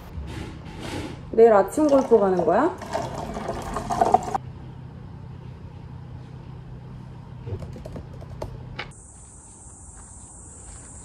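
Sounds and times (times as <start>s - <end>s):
typing on laptop keyboard: 7.6s - 8.5s
insect chorus: 8.9s - 11.0s.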